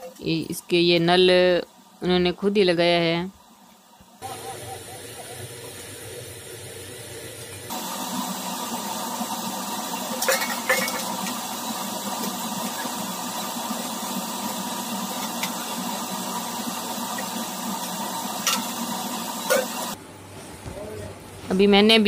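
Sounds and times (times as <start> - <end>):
tap water running: 6.5 - 20.0
steel vessels clinking: 10.1 - 11.5, 17.1 - 20.0.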